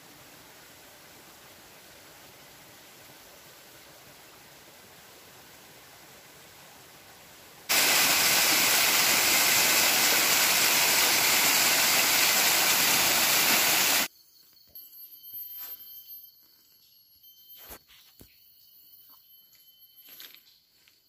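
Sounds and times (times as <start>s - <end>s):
faint hiss: 0.0s - 14.1s
waterfall rushing over rocks: 7.7s - 14.1s.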